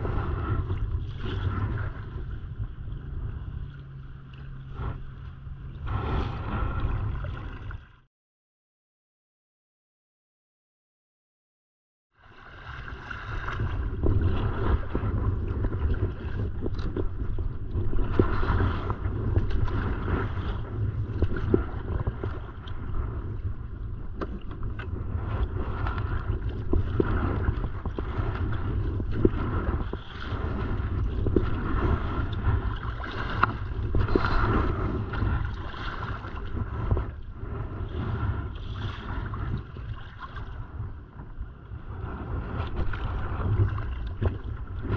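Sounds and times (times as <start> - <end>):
wind rumble on microphone: 0.0 - 8.1, 12.1 - 44.9
paddle strokes splashing water: 12.2 - 40.8, 42.1 - 44.9.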